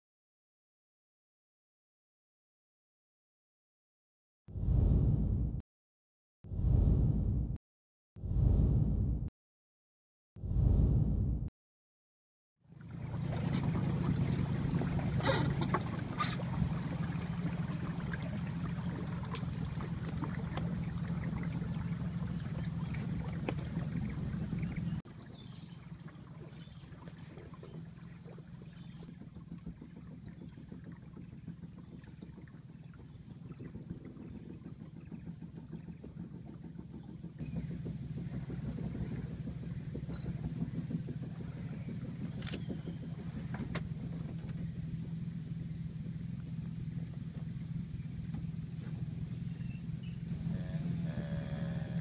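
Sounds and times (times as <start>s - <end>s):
outboard motor running: 12.7s - 52.0s
water noise: 12.7s - 52.0s.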